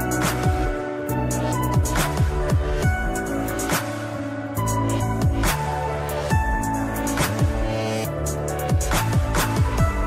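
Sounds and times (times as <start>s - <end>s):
electronic music with kick drums: 0.0s - 10.0s.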